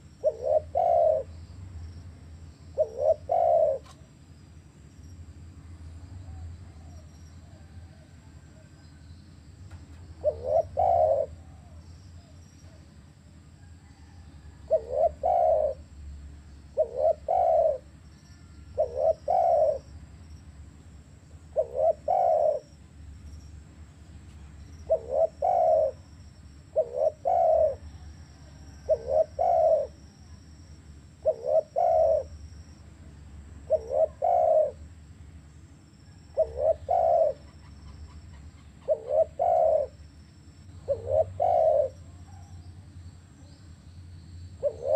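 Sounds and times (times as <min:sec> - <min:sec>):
dove cooing: 0:00.0 - 0:01.4, 0:02.7 - 0:04.1, 0:10.2 - 0:12.9, 0:13.7 - 0:15.9, 0:16.7 - 0:20.0, 0:21.5 - 0:22.8, 0:24.7 - 0:30.4, 0:31.1 - 0:32.5, 0:33.6 - 0:34.9, 0:36.1 - 0:40.0, 0:40.8 - 0:42.8, 0:44.6 - 0:44.9.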